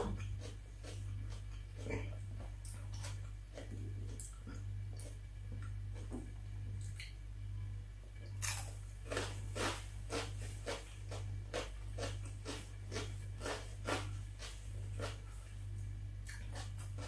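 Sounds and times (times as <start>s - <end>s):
bell pepper crunching: 0.0s - 6.1s, 8.3s - 15.4s.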